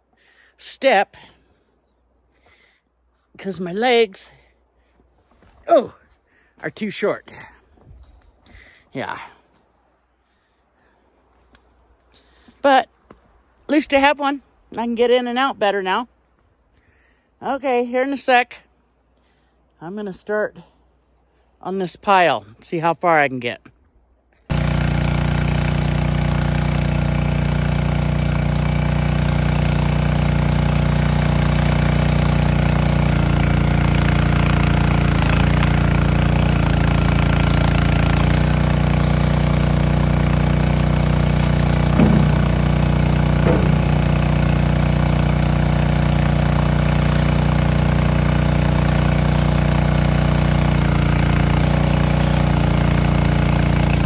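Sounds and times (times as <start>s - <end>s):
skid steer engine running: 24.5s - 54.0s
short knocks: 41.9s - 42.8s, 43.4s - 44.1s.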